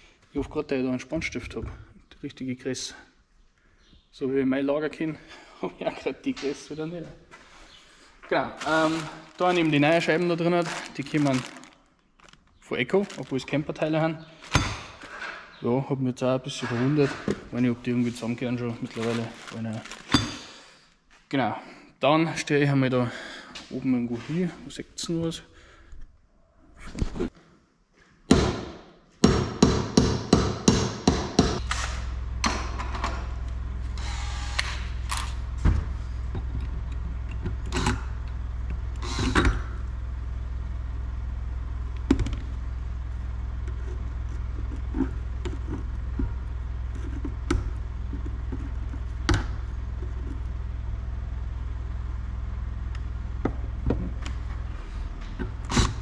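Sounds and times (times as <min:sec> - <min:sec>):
sharp knocks: 0:28.3 - 0:31.6
power tool motor running: 0:33.8 - 0:36.1, 0:38.9 - 0:39.8.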